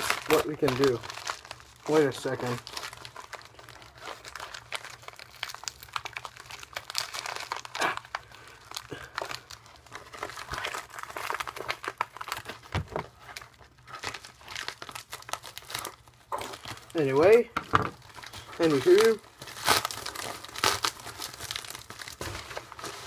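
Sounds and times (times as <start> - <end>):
plastic packaging rustling: 0.0 - 23.0.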